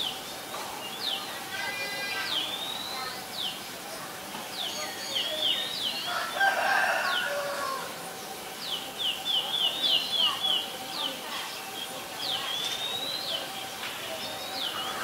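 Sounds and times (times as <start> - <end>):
small birds calling: 0.0 - 3.8, 4.4 - 15.0
rooster crowing: 6.1 - 7.9.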